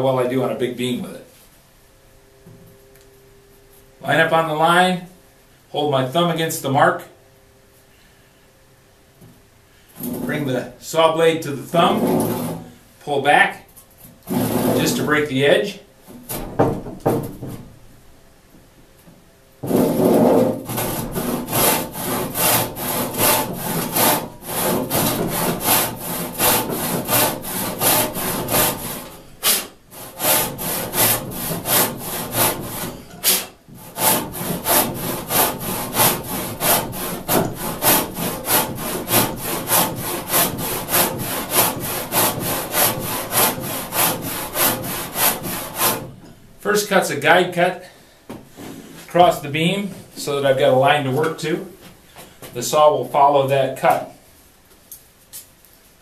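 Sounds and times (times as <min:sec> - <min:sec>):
handsaw sawing timber: 0:14.3 - 0:15.1, 0:19.6 - 0:46.1.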